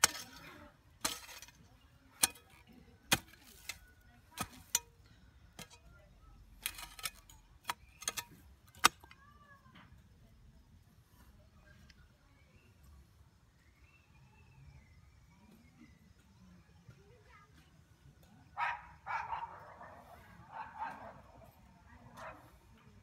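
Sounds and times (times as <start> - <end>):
hand tool chopping into hard earth: 0.0 - 0.4, 1.0 - 1.6, 2.2 - 5.0, 6.6 - 9.2.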